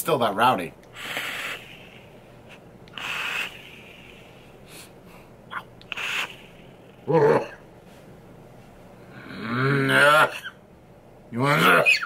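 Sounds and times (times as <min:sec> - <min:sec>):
breathy hisses through atomizer: 0:00.9 - 0:07.0.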